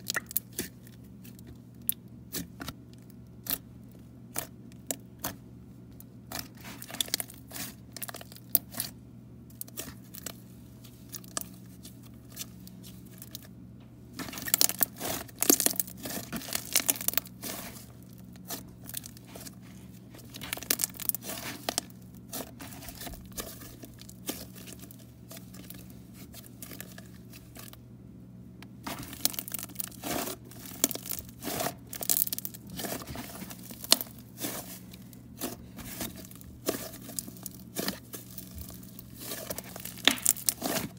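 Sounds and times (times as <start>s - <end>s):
slime crackling and popping: 6.2s - 10.4s, 14.2s - 27.7s, 28.8s - 40.9s.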